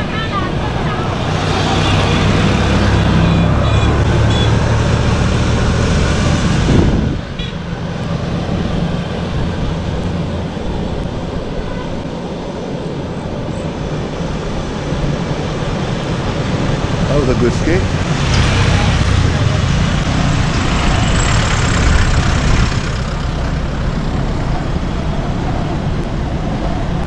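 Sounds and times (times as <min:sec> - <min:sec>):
steady road noise: 0:00.0 - 0:27.0
vehicle engine running: 0:16.9 - 0:26.4.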